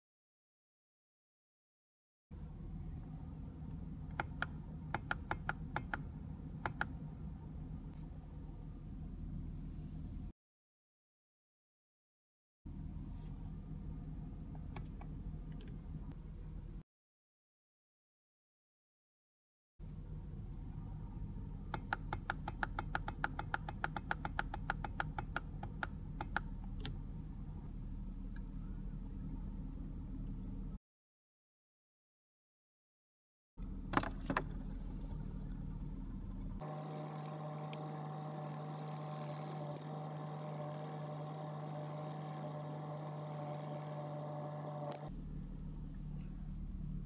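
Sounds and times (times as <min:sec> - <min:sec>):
low steady hum: 0:02.4 - 0:10.3, 0:12.7 - 0:16.8, 0:19.8 - 0:30.8, 0:33.6 - 0:47.0.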